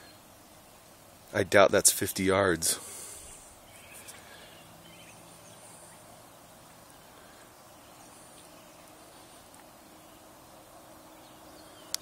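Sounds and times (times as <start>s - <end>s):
faint background hiss: 0.0s - 12.0s.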